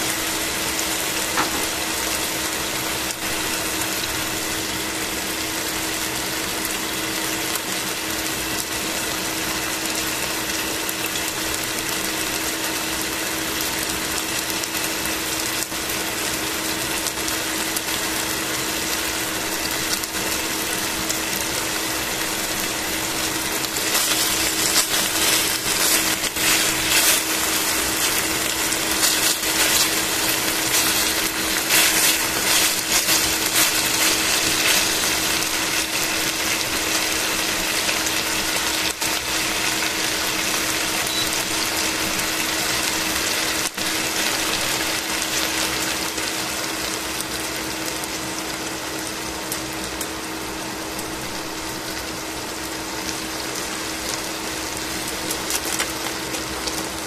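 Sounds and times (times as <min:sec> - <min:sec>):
chicken sizzling in oil: 0:00.0 - 0:57.0
steady low hum: 0:20.1 - 0:38.6.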